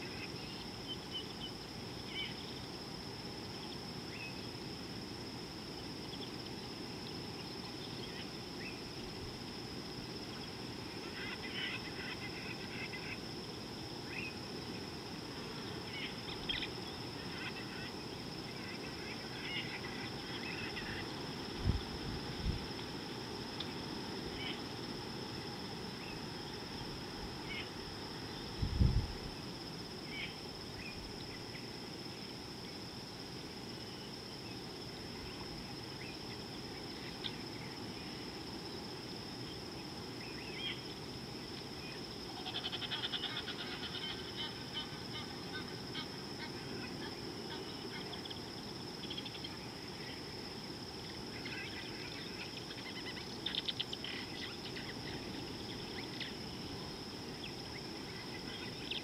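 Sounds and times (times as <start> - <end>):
high insect drone: 0.0 - 59.0
soft background hiss: 0.0 - 59.0.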